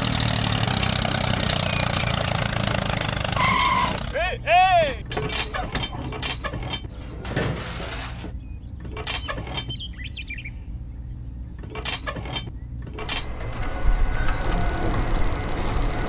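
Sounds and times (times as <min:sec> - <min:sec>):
high-pitched electronic beeping: 0:14.4 - 0:16.0.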